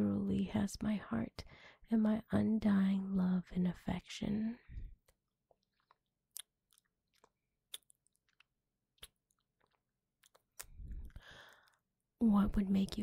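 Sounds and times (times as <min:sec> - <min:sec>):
mouth clicks and lip smacks: 0:05.0 - 0:11.8.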